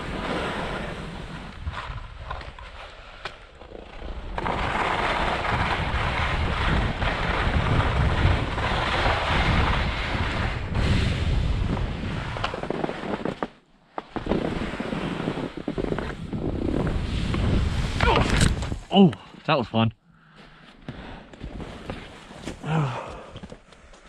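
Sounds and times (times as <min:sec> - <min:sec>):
skis scraping over snow: 0:00.0 - 0:18.9, 0:20.9 - 0:22.6
wind on microphone: 0:05.1 - 0:12.6, 0:15.6 - 0:18.9.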